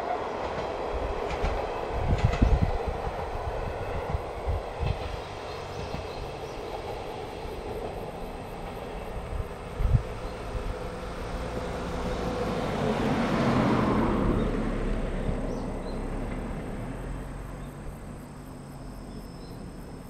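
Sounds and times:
vehicle passing by: 0:09.3 - 0:19.7.

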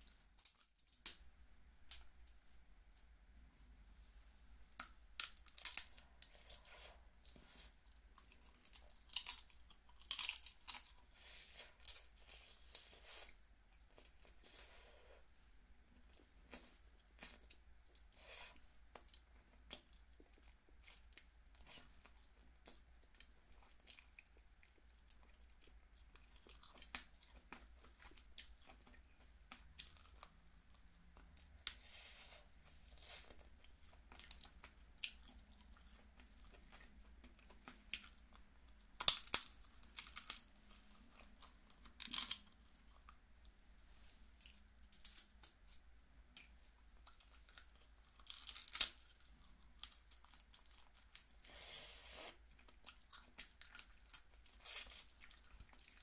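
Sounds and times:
crab shell cracking: 0:04.7 - 0:06.0, 0:39.0 - 0:40.5, 0:48.2 - 0:49.1
close chewing: 0:16.0 - 0:43.2, 0:46.9 - 0:56.0.

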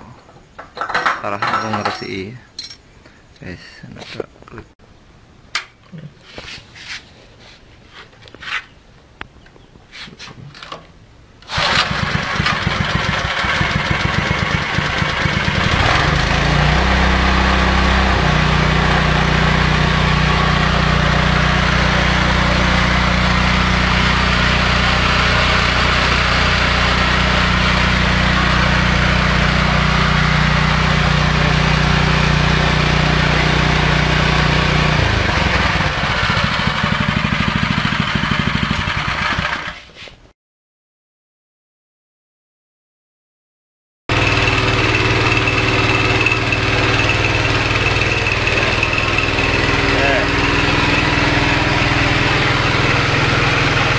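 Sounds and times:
small gasoline engine running: 0:11.4 - 0:39.8, 0:44.1 - 0:53.9.

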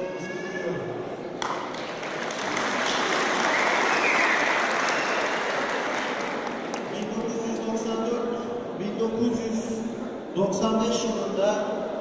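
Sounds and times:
audience applauding: 0:01.4 - 0:07.2.

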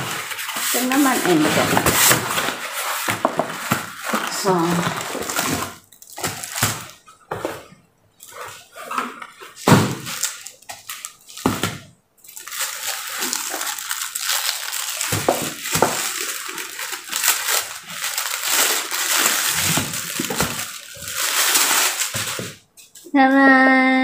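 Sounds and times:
plastic wrapping crinkling: 0:00.0 - 0:23.1.

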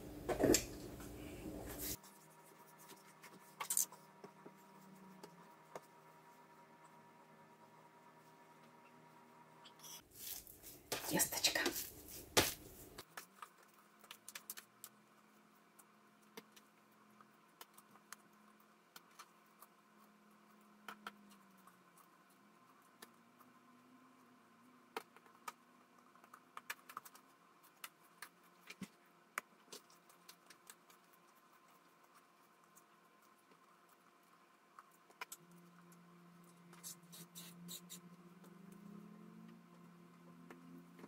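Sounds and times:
faint background hum: 0:00.0 - 0:41.0
hands shaping dough clicks: 0:10.9 - 0:15.0.

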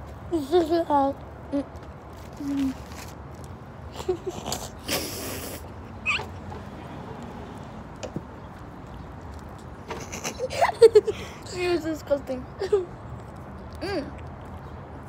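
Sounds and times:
short high squeak: 0:06.0 - 0:06.4
stifled laughter: 0:09.9 - 0:11.3.

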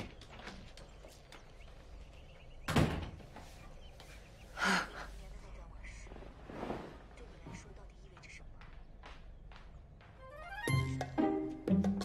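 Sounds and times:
door slamming shut: 0:02.7 - 0:03.2.

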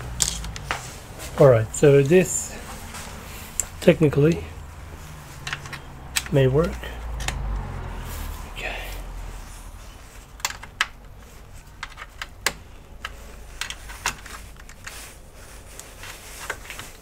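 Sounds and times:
hands handling connectors clicking: 0:00.0 - 0:00.9, 0:03.4 - 0:04.4, 0:05.2 - 0:07.6, 0:10.0 - 0:17.0.

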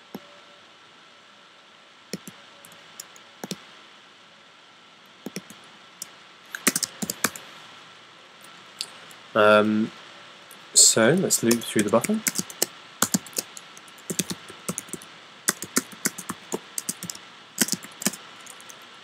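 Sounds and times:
typing on computer keyboard: 0:05.3 - 0:05.6, 0:06.6 - 0:07.4, 0:11.5 - 0:18.8.

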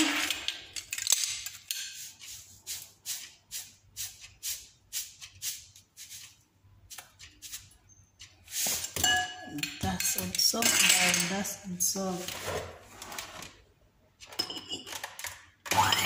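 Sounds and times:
kitchen items rattling when shaken: 0:00.0 - 0:02.5, 0:08.6 - 0:13.5.

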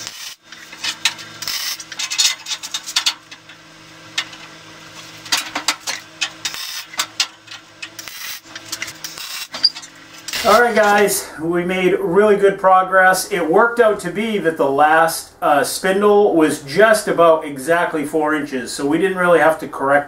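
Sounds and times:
welding crackle: 0:00.0 - 0:11.1
steady low hum: 0:00.0 - 0:20.0.

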